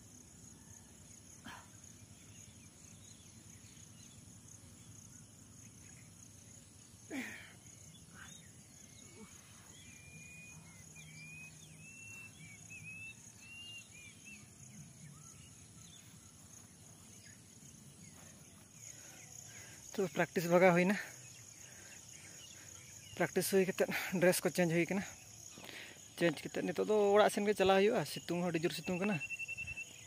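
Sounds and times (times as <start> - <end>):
high insect drone: 0.0 - 30.0
birds chirping: 1.6 - 30.0.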